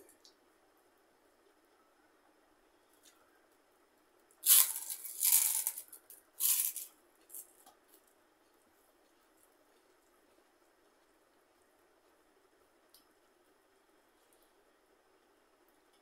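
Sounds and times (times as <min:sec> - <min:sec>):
crisp fried snack crunching: 0:04.4 - 0:07.5.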